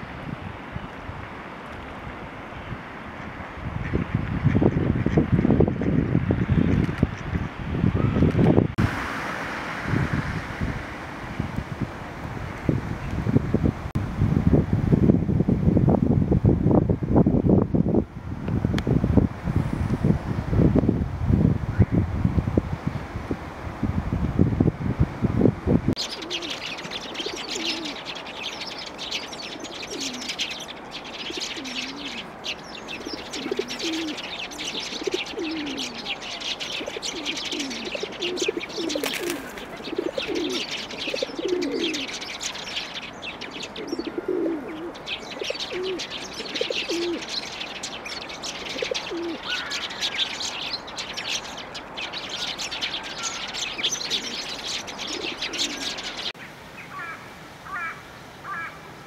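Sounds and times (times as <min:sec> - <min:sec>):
sparrows twittering chorus: 0:26.0 - 0:57.2
short low bird calls: 0:26.0 - 0:58.8.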